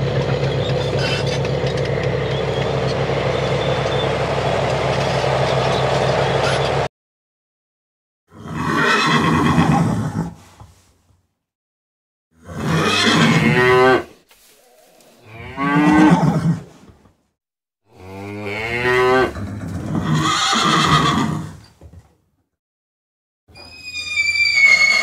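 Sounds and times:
cow mooing: 12.6 - 14.1, 14.7 - 16.4, 17.9 - 19.4.

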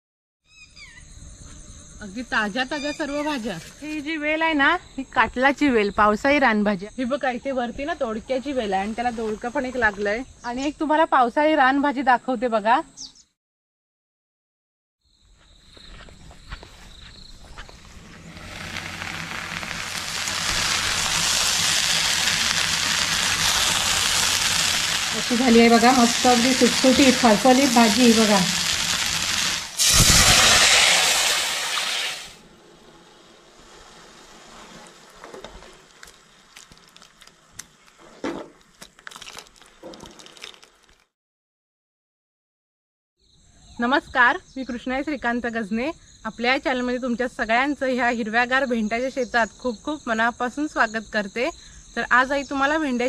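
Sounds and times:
vegetables sizzling in a pan: 17.5 - 38.0.

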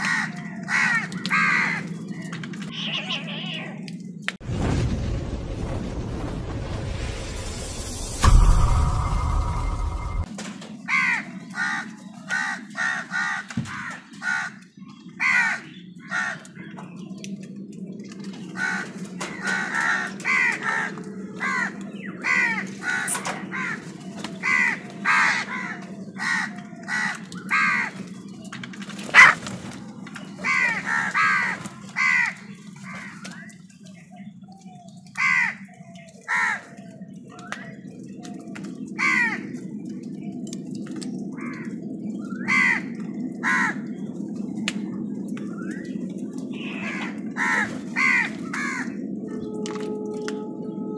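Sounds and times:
crows cawing: 0.0 - 2.0, 10.8 - 16.6, 18.5 - 28.2, 29.1 - 29.5, 30.4 - 33.5, 35.1 - 37.0, 39.0 - 39.6, 41.3 - 44.1, 46.5 - 49.1.

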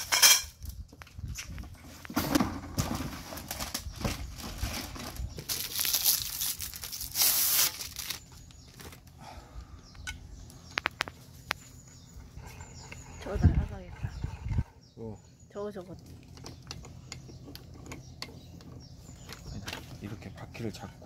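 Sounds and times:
plastic wrapping tearing: 5.4 - 8.3.

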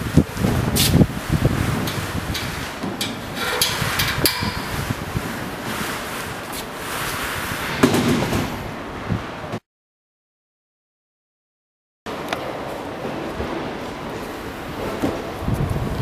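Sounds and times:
metal clicks and knocks: 1.9 - 4.8.

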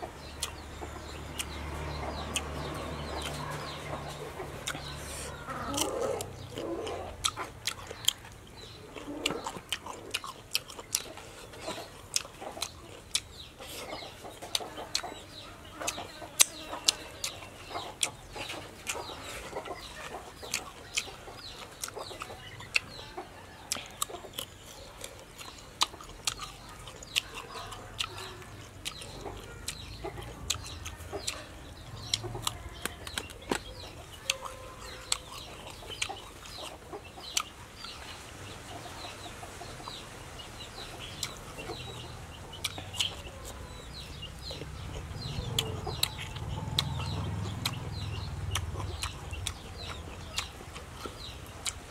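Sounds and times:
chewing raw vegetables: 0.0 - 51.9
mouth smacks: 41.0 - 51.9.

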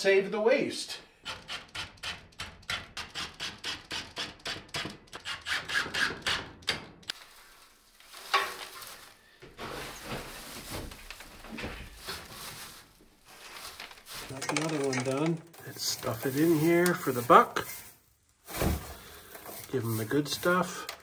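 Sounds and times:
handling and rustling: 7.1 - 21.0.

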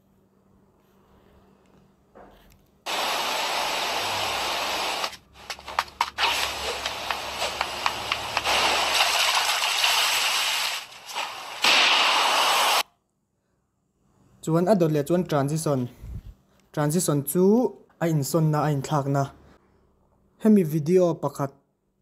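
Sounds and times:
loud rushing hiss: 2.9 - 12.8.

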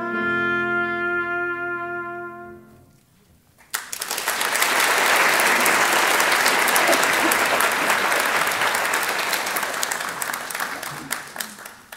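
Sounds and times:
audience applauding: 3.6 - 11.9.

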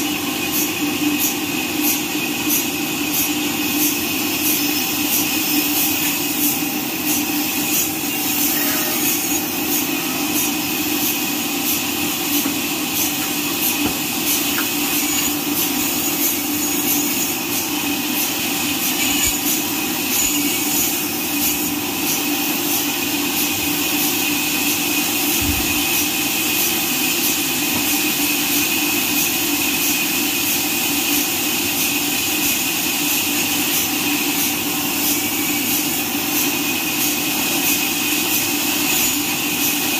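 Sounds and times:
band sawmill cutting log: 2.2 - 33.4.

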